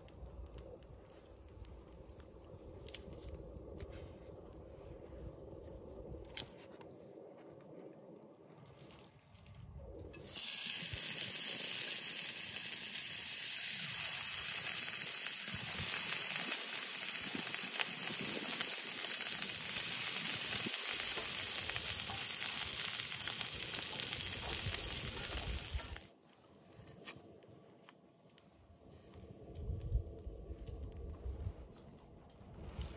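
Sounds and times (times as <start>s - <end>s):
fat sizzling in a pan: 10.2s - 26.1s.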